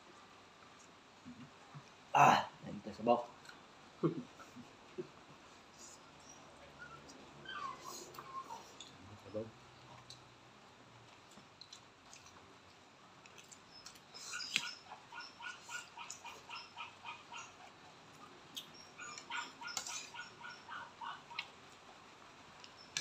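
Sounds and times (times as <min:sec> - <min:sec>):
animal whining calls: 0:05.8 - 0:09.5, 0:14.1 - 0:17.7, 0:18.6 - 0:21.5.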